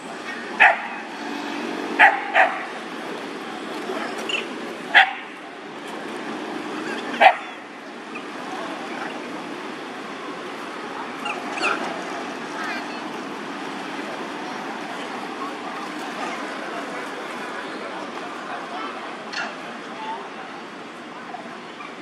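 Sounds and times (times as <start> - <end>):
steady background noise: 0.0 - 22.0
dog barking: 0.6 - 1.0, 2.0 - 2.7, 5.0 - 5.3, 7.2 - 7.5.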